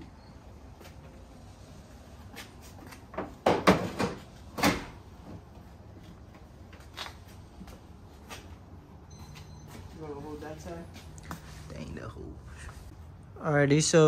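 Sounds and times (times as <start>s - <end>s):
hard knocks and clunks: 3.1s - 5.0s.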